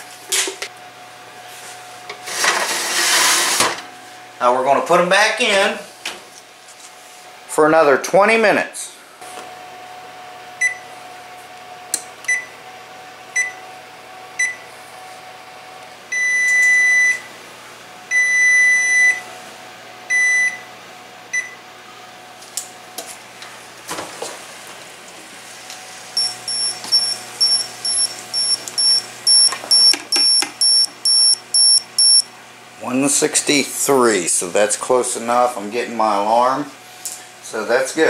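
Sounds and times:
thermometer alarm beeping: 10.6s - 10.8s, 13.4s - 13.6s, 14.4s - 14.6s, 16.1s - 17.3s, 18.1s - 19.2s, 20.1s - 20.6s, 26.2s - 32.3s
control panel beeping: 26.2s - 32.2s.

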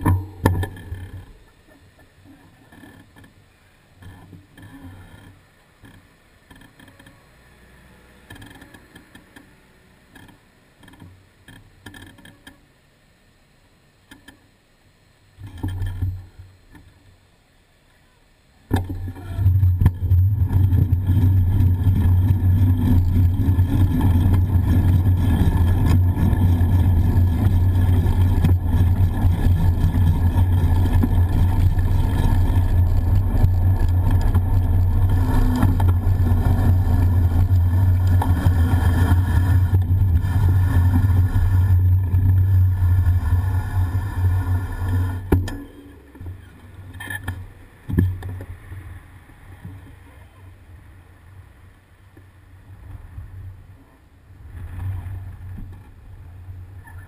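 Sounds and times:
faint street traffic: 0.0s - 15.4s, 16.0s - 20.3s, 21.0s - 57.0s
wind and road noise rumble: 18.7s - 57.0s.

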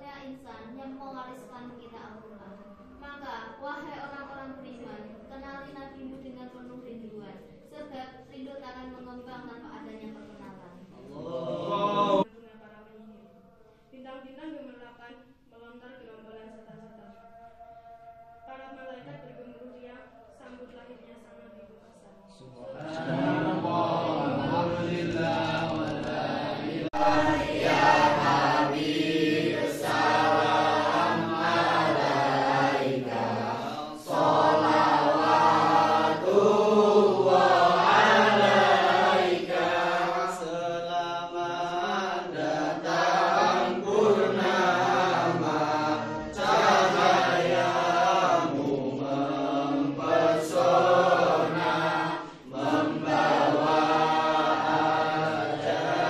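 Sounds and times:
young voices chanting: 11.0s - 12.3s, 22.3s - 56.0s.

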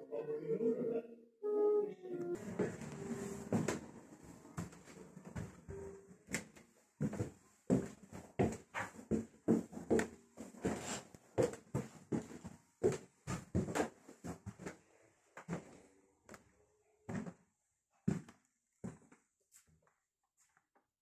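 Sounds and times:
footsteps on wooden stairs: 2.4s - 14.8s, 18.1s - 19.2s.

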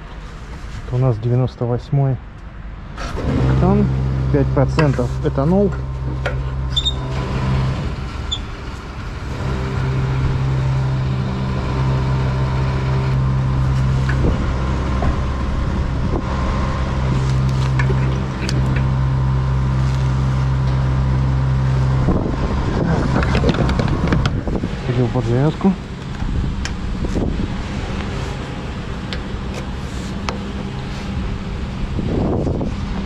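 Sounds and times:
fuel dispenser humming: 3.0s - 24.9s.

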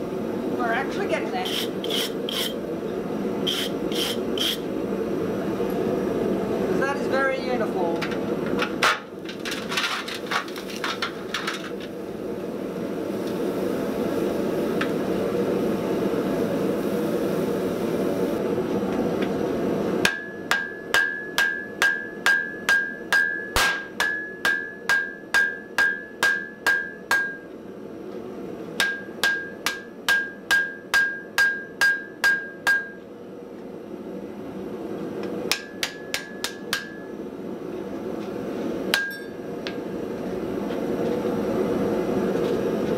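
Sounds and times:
hammer striking anvil: 20.0s - 27.4s, 28.8s - 33.0s, 35.5s - 37.1s, 38.9s - 39.4s.

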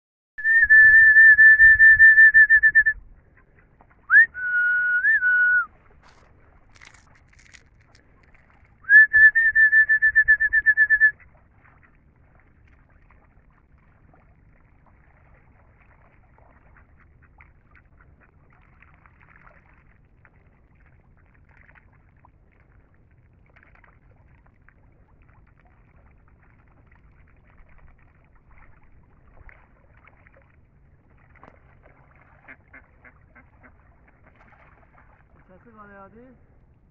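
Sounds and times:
high warbling whistle: 0.4s - 3.0s, 4.1s - 5.8s, 8.8s - 11.2s.

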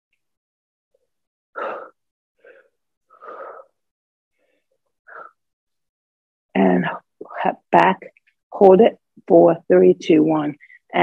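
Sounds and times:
woman breathing hard: 1.6s - 5.4s.

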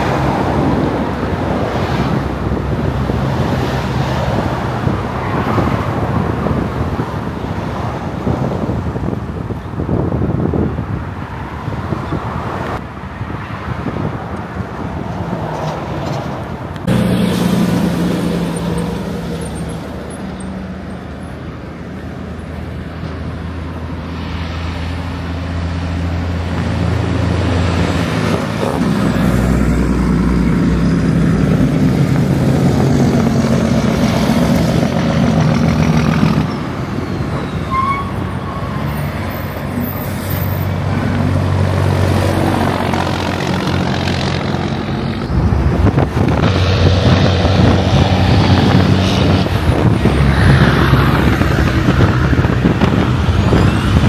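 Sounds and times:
cars and trucks passing: 0.0s - 54.0s
car interior road noise: 38.2s - 54.0s.

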